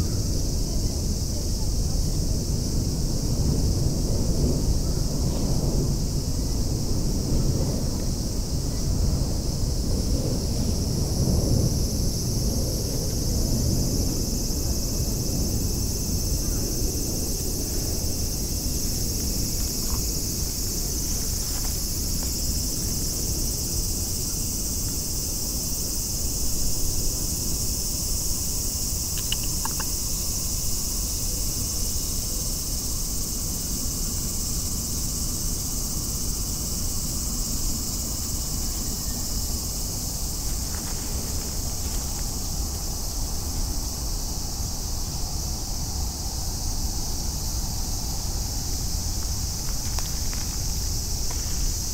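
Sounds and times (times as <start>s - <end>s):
cicadas droning: 0.0s - 51.9s.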